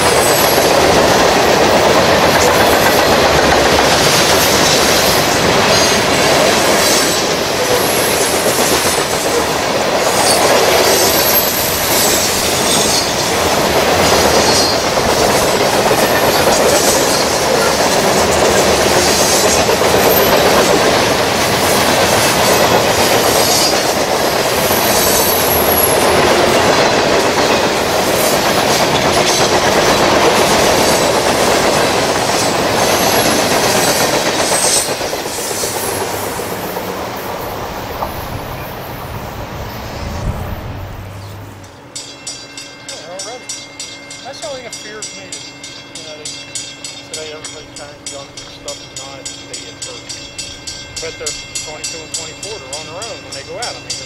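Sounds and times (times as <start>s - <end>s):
wheels clicking over rail joints: 0.0s - 38.6s
freight train rumbling past: 0.0s - 54.0s
high-pitched wheel squeals: 10.2s - 13.4s, 14.4s - 14.9s.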